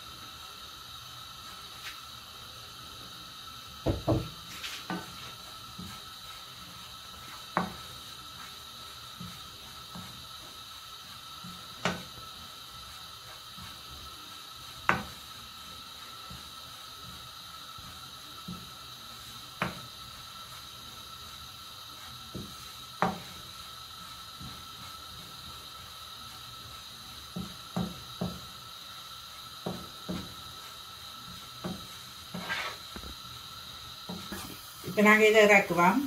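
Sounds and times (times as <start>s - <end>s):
wooden spatula scraping frying pan: 4.3s - 10.6s, 20.5s - 33.2s, 34.0s - 35.8s.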